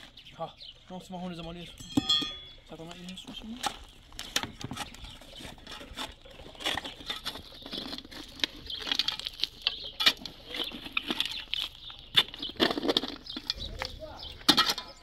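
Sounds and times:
shovel scraping gravelly soil: 3.2 - 15.0.

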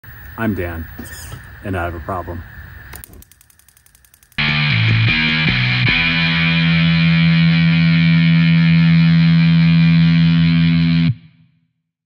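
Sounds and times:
distorted electric guitar chord: 4.4 - 11.4.

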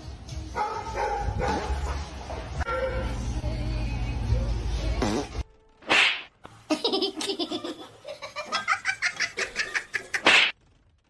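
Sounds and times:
person laughing: 6.7 - 10.3.

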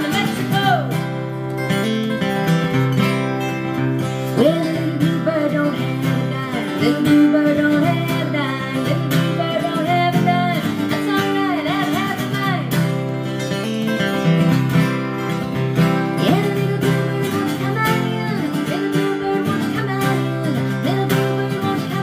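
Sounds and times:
woman singing: 0.0 - 1.3, 4.3 - 13.2, 15.8 - 22.0
strummed acoustic guitar: 0.0 - 22.0.

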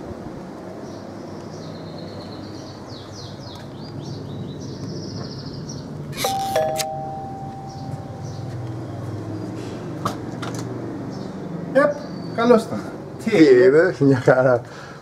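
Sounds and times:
small birds chirping: 0.8 - 6.7, 7.5 - 10.0, 11.0 - 13.4
doorbell ringing: 6.2 - 8.6.

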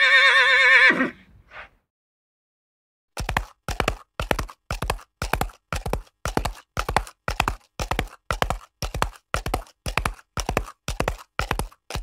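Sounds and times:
horse hoofbeats galloping: 3.2 - 12.0.

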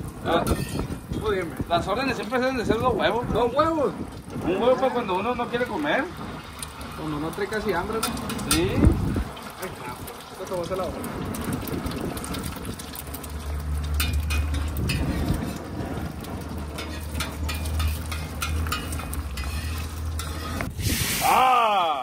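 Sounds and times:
eggs sizzling in oil: 0.0 - 21.9
metal spatula scraping pan: 0.4 - 1.0, 13.9 - 15.8, 16.5 - 20.7.

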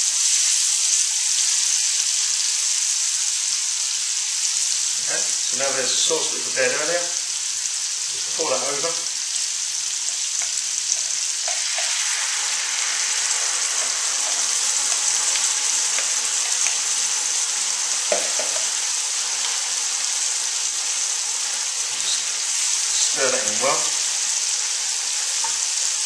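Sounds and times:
food sizzling in oil: 0.0 - 26.0
sauce pouring: 4.4 - 26.0
spatula stirring: 10.1 - 19.6.

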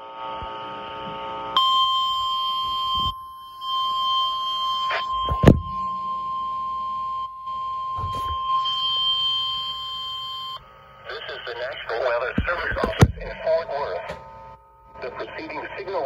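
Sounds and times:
steady single-pitch alarm beep: 1.6 - 11.0, 12.3 - 15.0
sharp knock: 12.4 - 13.4.

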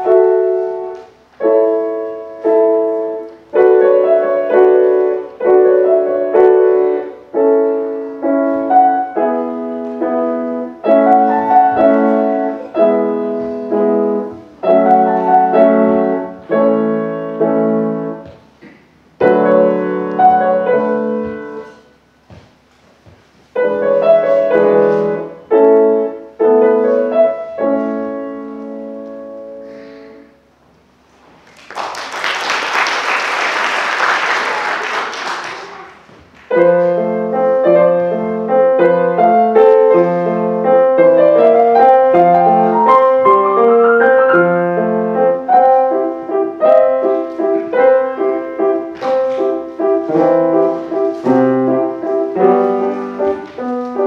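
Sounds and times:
grand piano playing: 0.0 - 22.1, 23.5 - 30.3, 36.5 - 54.0
audience applause: 31.4 - 36.1.

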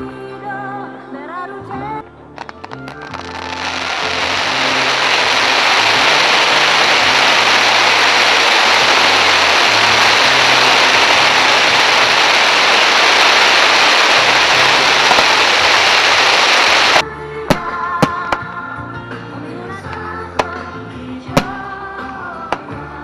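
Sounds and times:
music with bass line: 1.8 - 16.4, 17.0 - 23.0
fireworks hissing and crackling: 2.4 - 18.4, 21.4 - 22.9.

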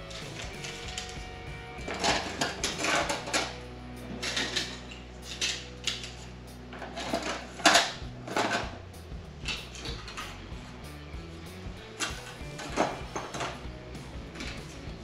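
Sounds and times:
circuit boards clattering into tub: 1.8 - 6.1, 6.8 - 8.8.

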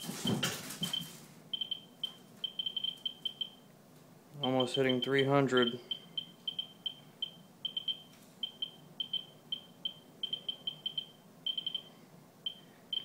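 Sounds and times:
geiger counter beeping: 1.6 - 3.6, 4.4 - 11.9, 12.5 - 13.0.

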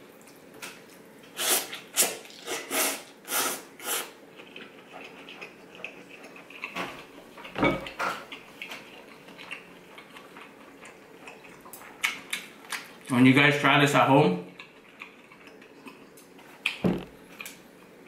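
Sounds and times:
wet chewing clicks: 4.4 - 7.5, 8.2 - 13.1, 14.5 - 17.6
deep dull thud: 16.8 - 17.2.

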